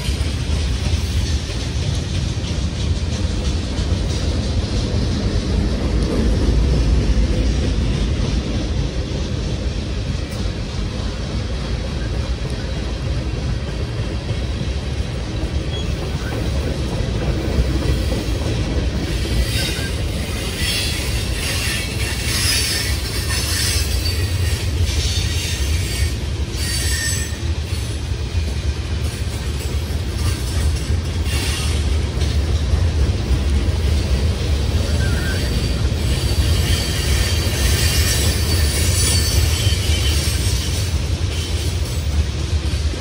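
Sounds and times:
train cars rumbling past: 0.0s - 43.0s
wheels squealing: 19.0s - 28.0s, 34.6s - 42.1s.

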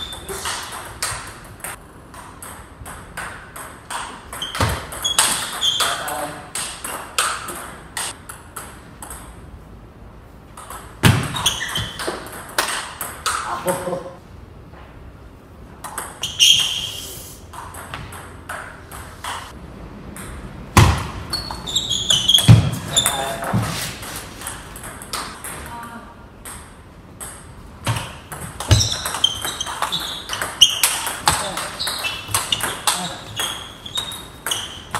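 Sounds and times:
shoes squeaking on wooden floor: 4.4s - 6.2s, 11.1s - 12.1s, 21.3s - 24.0s, 28.6s - 34.9s.

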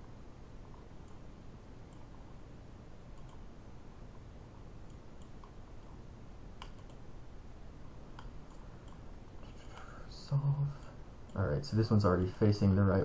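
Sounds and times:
low steady background hum: 0.0s - 13.0s
computer mouse clicks: 0.7s - 1.2s, 1.9s - 2.2s, 3.1s - 3.5s, 4.8s - 5.6s, 6.6s - 7.0s, 8.1s - 9.9s.

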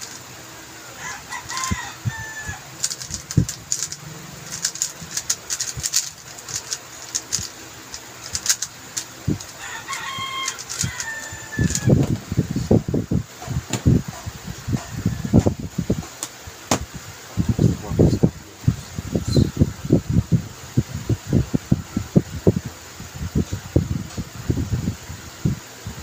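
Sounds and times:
puzzle cube clacking: 0.0s - 0.3s, 1.4s - 12.1s.

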